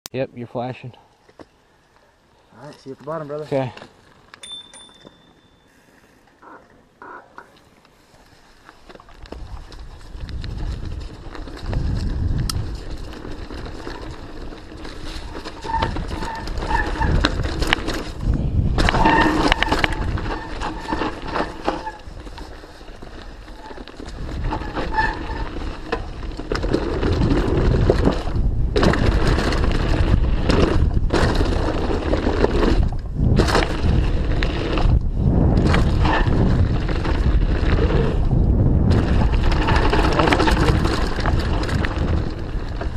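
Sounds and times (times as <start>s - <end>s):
bike tyres rumbling over dirt: 8.1s - 42.9s
bike rattling and knocking: 8.9s - 42.9s.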